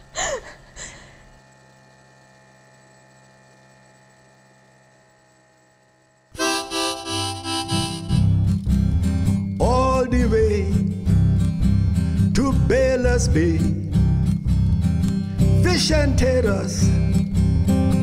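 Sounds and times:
harmonica playing folk song: 6.4 - 8.6.

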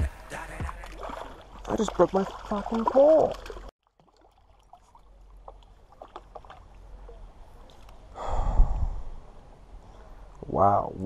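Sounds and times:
river water at rocky bank: 0.0 - 8.4.

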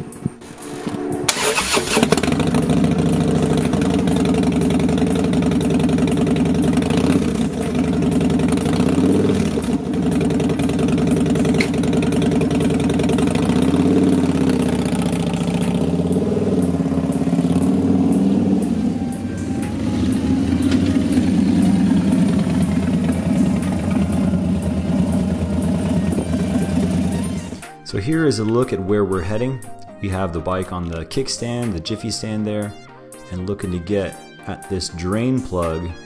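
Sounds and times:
motorcycle engine starting: 0.4 - 27.7
motorcycle pulling away: 0.5 - 27.6
motorcycle engine idling: 1.3 - 27.7.

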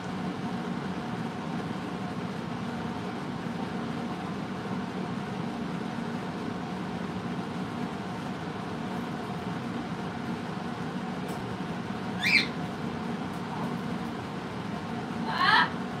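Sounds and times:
parrot squeak: 12.2 - 12.6.

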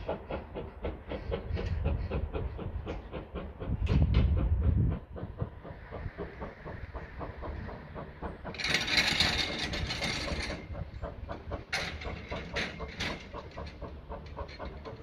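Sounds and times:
steam hissing: 0.0 - 15.0
steam locomotive exhaust beat: 0.0 - 15.0
clanking motion: 5.1 - 15.0.

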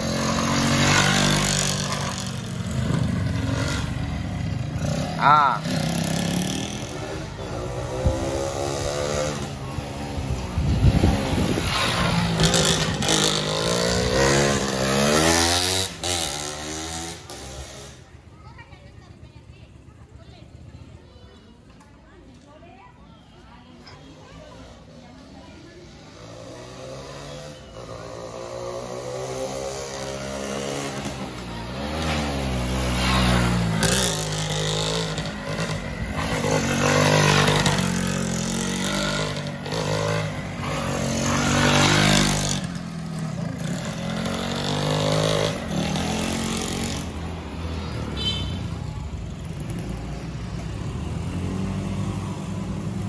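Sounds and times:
motorcycle revving hard: 0.0 - 18.0, 26.2 - 48.8.

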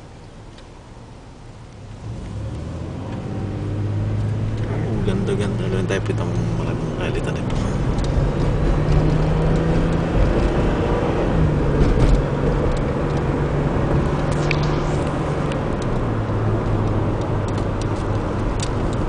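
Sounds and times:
car engine hum: 0.0 - 19.0
road and tyre noise: 0.0 - 19.0.

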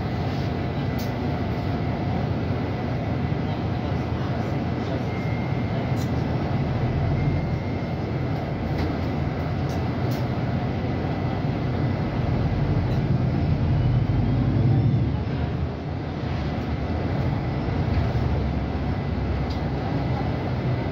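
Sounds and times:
bus engine and road rumble: 0.0 - 20.9.

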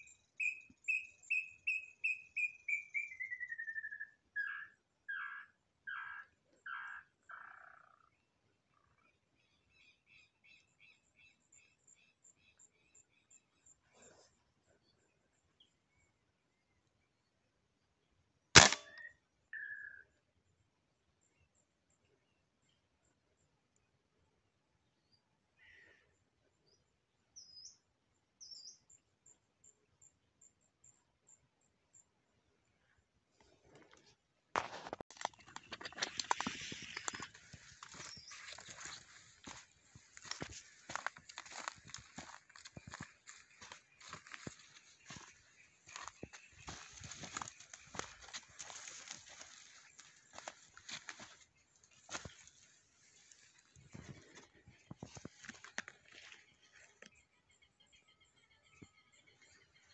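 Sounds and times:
faint high chirping: 0.0 - 5.3
small birds chirping: 0.0 - 17.4, 21.2 - 34.2, 34.9 - 59.9.

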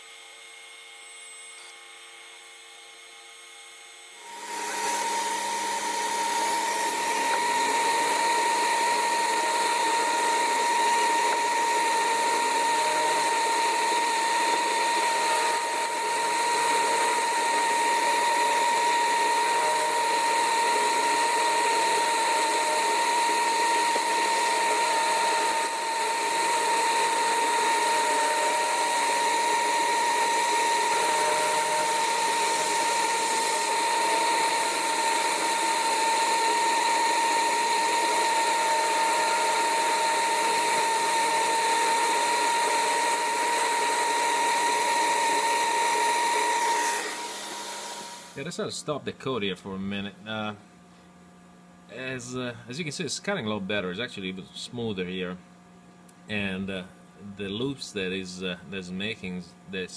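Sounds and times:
milling machine cutting metal: 4.2 - 48.4.

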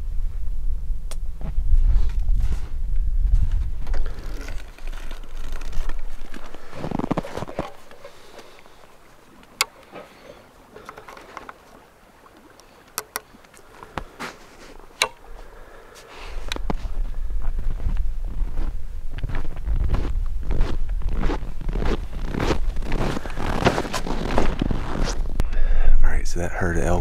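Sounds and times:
wind buffeting microphone: 0.0 - 9.3, 16.3 - 26.0.

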